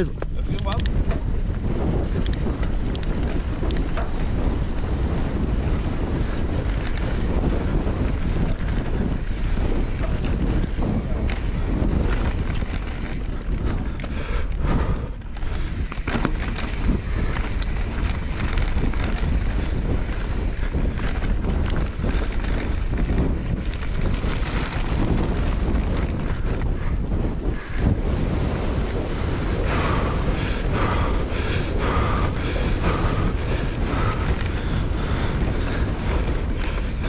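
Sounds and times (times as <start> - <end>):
wind buffeting microphone: 0.0 - 37.0
bike rattling knocks: 6.3 - 27.0
tyres on dirt and stones: 15.2 - 26.6.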